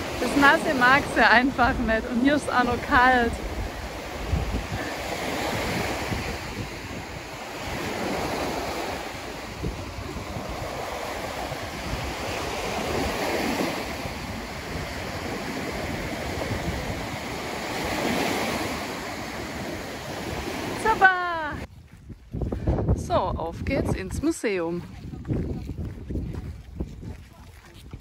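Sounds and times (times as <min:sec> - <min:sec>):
waves washing up beach: 0:00.0 - 0:21.7
wind buffeting microphone: 0:00.0 - 0:28.0.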